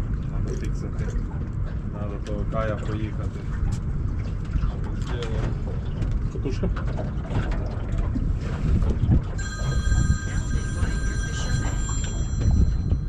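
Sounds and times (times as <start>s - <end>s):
wind buffeting microphone: 0.0s - 13.0s
mobile phone ringtone: 9.4s - 13.0s.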